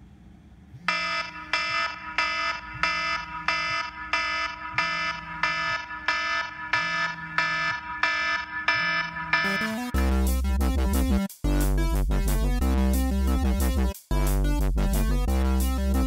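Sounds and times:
phone alarm chiming tone: 0:00.9 - 0:10.0.

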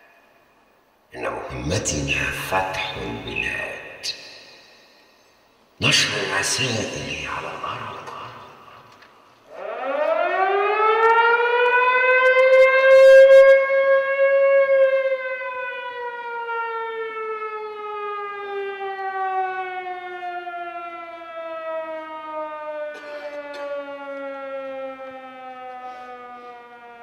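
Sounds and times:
air-raid siren winding: 0:09.5 - 0:13.6.

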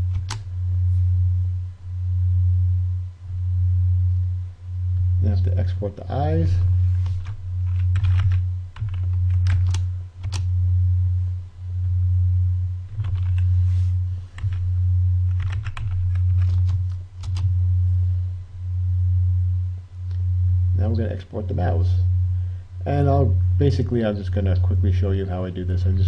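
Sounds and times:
loud low hum: 0:00.0 - 0:26.0
computer keyboard keystrokes: 0:00.1 - 0:00.4, 0:07.1 - 0:10.5, 0:12.9 - 0:13.4, 0:14.4 - 0:14.6, 0:15.3 - 0:17.5.

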